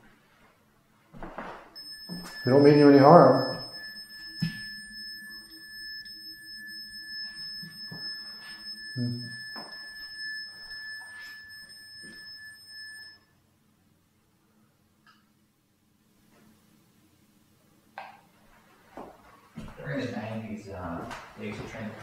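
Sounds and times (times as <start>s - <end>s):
temperature meter alert tone: 1.8s - 13.2s.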